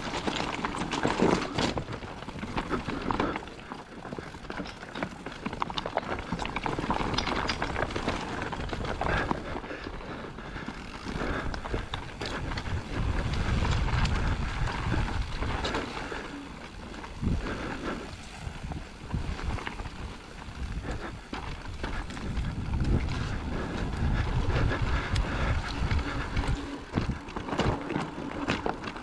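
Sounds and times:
tyres crunching over loose stone: 0.0 - 9.9, 25.7 - 29.0
bike clattering and rattling: 0.0 - 29.0
wind rumble on microphone: 11.0 - 29.0.

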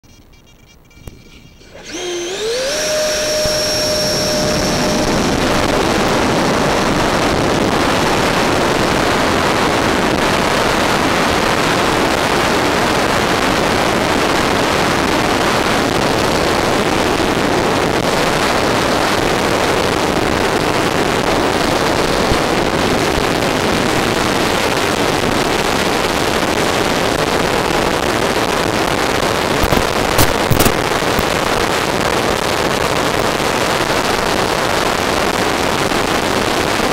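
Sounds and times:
model airplane motor whine: 0.7 - 10.7, 14.0 - 27.3
rush of motor and air noise: 1.6 - 36.9.

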